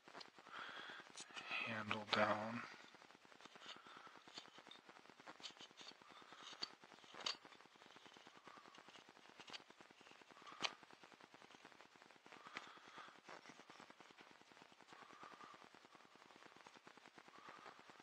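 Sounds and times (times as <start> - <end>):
small clicks: 3.4 - 10.8.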